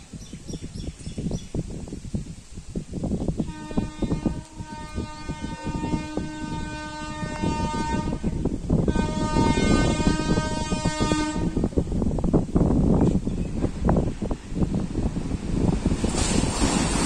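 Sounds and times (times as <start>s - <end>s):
wind buffeting microphone: 0.0s - 17.0s
locomotive horn blasts: 3.4s - 11.7s.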